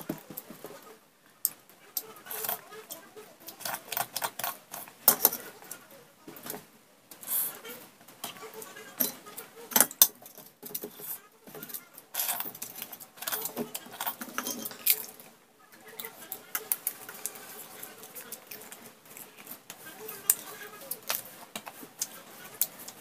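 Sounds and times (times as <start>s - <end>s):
steel bowls clinking on plate: 3.5s - 5.7s, 9.0s - 15.2s
wet smacking and chewing: 16.0s - 23.0s.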